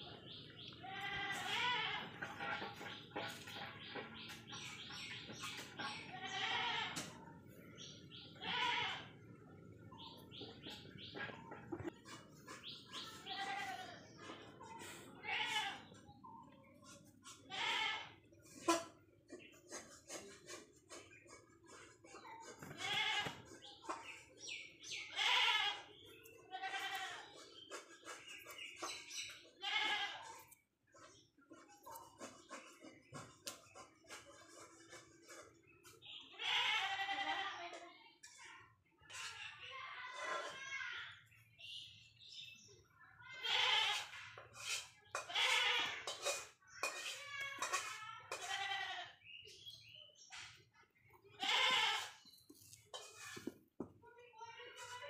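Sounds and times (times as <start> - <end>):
bleating animal calls: 6.1 - 7.0, 25.1 - 25.9, 29.6 - 30.4, 36.3 - 37.6, 45.2 - 46.1, 51.3 - 52.2.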